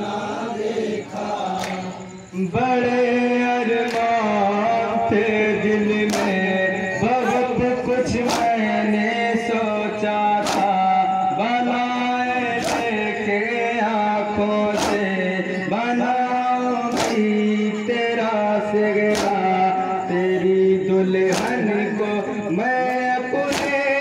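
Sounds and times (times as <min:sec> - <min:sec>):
men chanting in unison: 0:00.0 - 0:24.0
chest-beating slaps: 0:01.5 - 0:01.9, 0:06.0 - 0:06.5, 0:08.2 - 0:08.8, 0:10.4 - 0:11.0, 0:12.4 - 0:13.2, 0:14.7 - 0:15.3, 0:16.9 - 0:17.6, 0:19.0 - 0:19.7, 0:21.2 - 0:21.7, 0:23.5 - 0:23.9.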